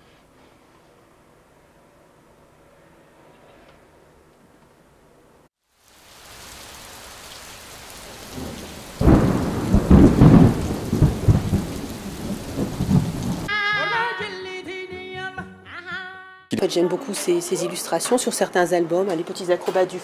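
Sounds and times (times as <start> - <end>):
rain hiss: 5.6 - 13.5
rolling thunder: 8.0 - 13.5.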